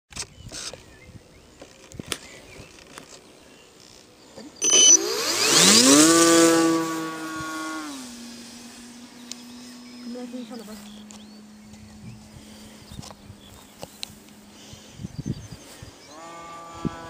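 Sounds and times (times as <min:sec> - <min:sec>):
model aeroplane motor buzzing: 0:03.8 - 0:17.0.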